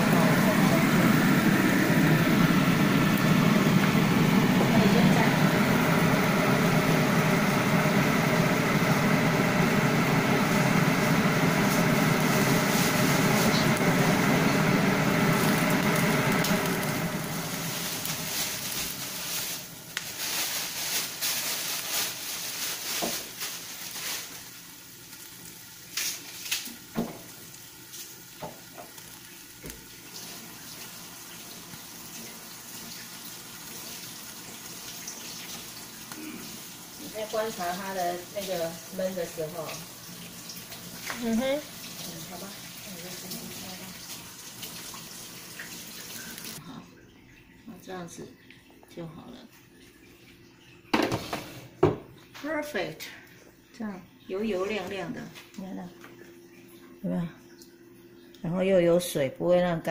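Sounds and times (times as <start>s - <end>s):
loud steady hum: 0.0s - 19.5s
fish sizzling in frying pan: 0.0s - 46.6s.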